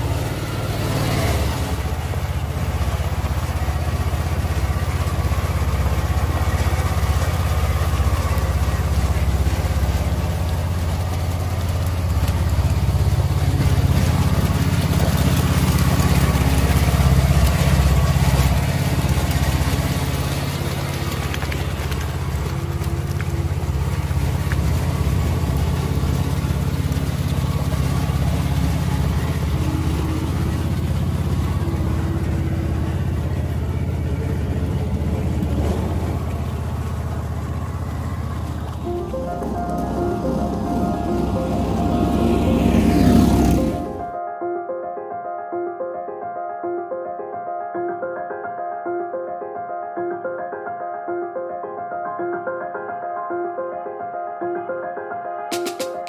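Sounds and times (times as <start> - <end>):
all-terrain vehicle engine running: 0.0 - 44.2.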